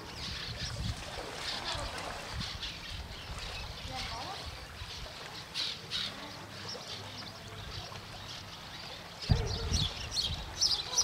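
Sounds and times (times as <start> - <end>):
small birds chirping: 0.0 - 11.0.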